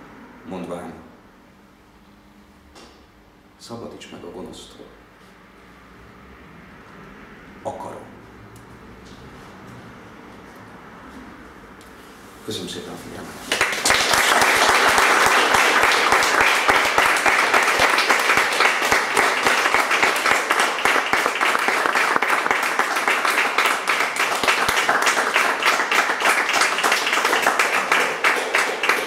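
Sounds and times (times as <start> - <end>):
audience clapping: 13.4 - 29.0.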